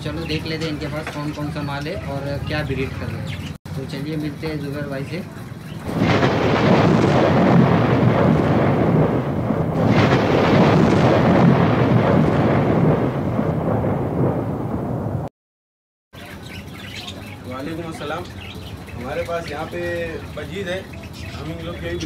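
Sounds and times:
deep rumbling impact: 0:05.8 - 0:15.3.

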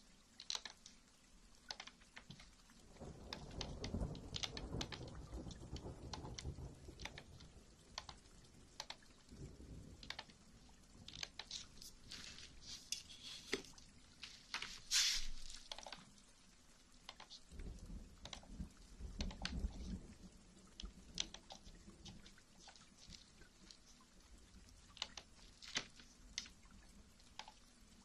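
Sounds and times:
scratchy rustles: 0:11.4 - 0:15.8.

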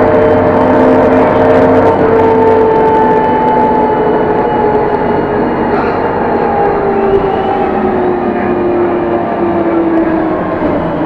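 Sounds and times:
bus engine and drivetrain whine: 0:00.0 - 0:11.0
road rumble: 0:00.0 - 0:11.0.

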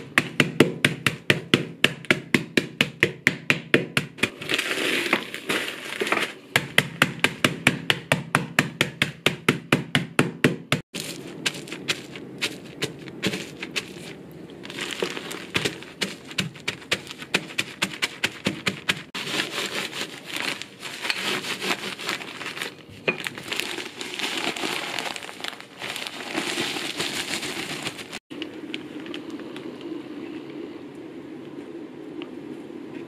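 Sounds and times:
rolling pin knocking on biscuits: 0:00.0 - 0:04.4, 0:06.0 - 0:19.5
rolling pin crunching crumbs: 0:00.0 - 0:29.6
plastic bag crinkling: 0:04.3 - 0:06.5, 0:11.0 - 0:29.9.

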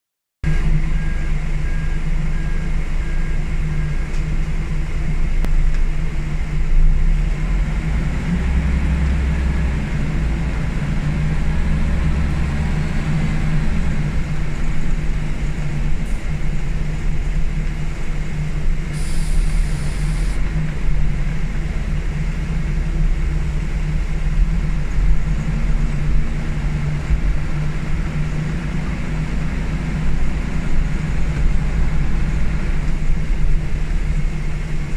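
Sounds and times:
bus diesel engine drone: 0:00.4 - 0:34.9
road noise: 0:00.4 - 0:34.9
air hiss: 0:18.9 - 0:20.4.

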